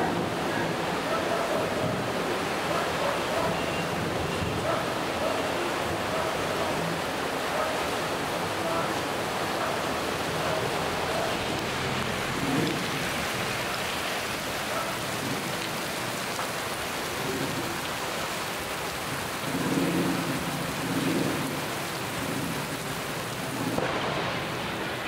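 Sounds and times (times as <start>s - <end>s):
steady rain falling: 0.0s - 25.0s.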